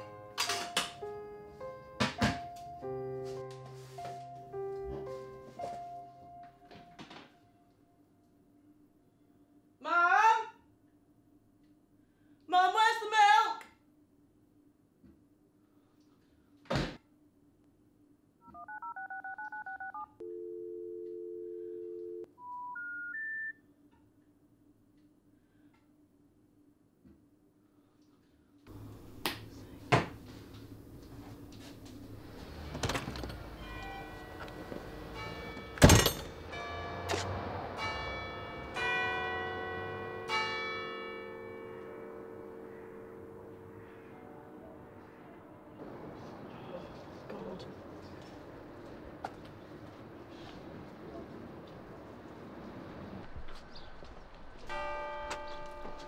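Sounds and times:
phone ringing tone: 0:18.4 - 0:23.6
phone keypad dialing beeps: 0:18.5 - 0:23.5
bells ringing: 0:33.4 - 0:45.0, 0:54.7 - 0:56.0.

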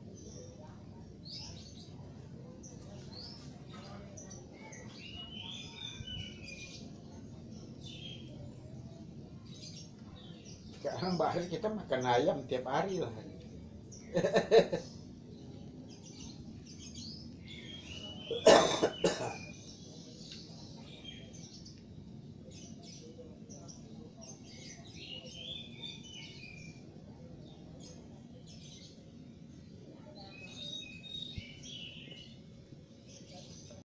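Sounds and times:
person coughing: 0:18.4 - 0:19.4.

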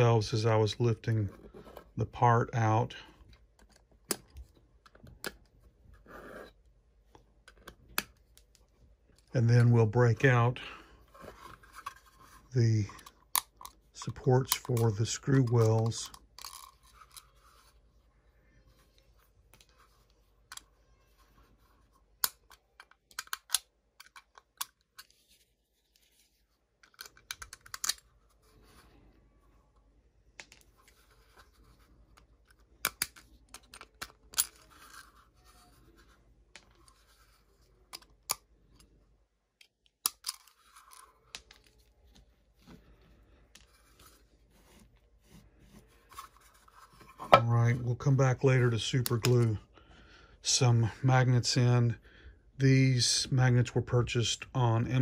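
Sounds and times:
plastic clicks and snaps: 0:22.2 - 0:25.1.

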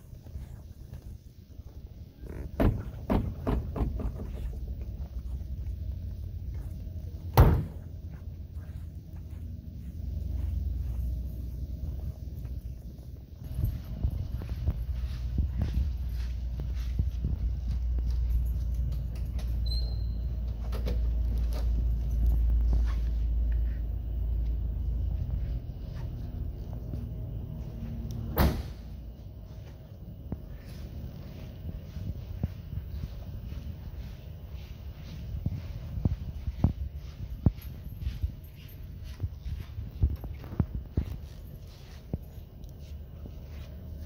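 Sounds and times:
steady low rumble: 0:00.0 - 0:19.5, 0:20.1 - 0:44.0
car door slamming: 0:07.3 - 0:07.8, 0:28.3 - 0:28.8.

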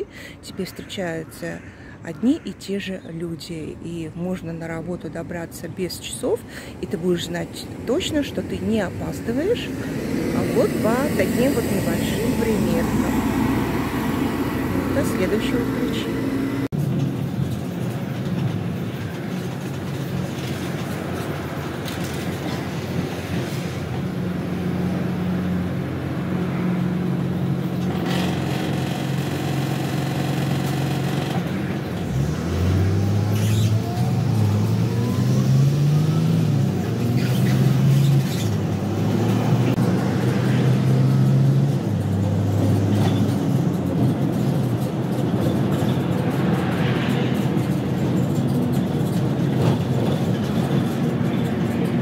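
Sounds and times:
bus motor and road noise: 0:00.0 - 0:52.0
bus motor whine rising: 0:08.9 - 0:16.7, 0:25.1 - 0:43.4.

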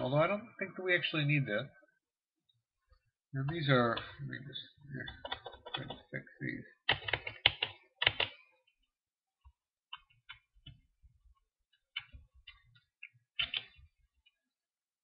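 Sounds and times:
computer keyboard key presses: 0:06.9 - 0:08.4, 0:13.0 - 0:13.8.

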